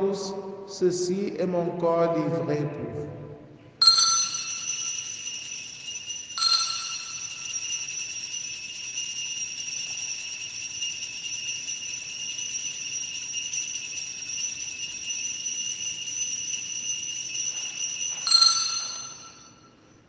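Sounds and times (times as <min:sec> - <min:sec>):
altar bells ringing: 0:03.8 - 0:20.0.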